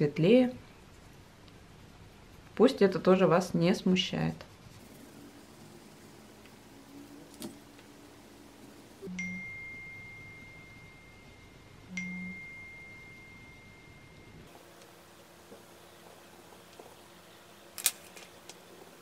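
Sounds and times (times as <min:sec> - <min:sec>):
high chime ringing: 0:09.0 - 0:14.5.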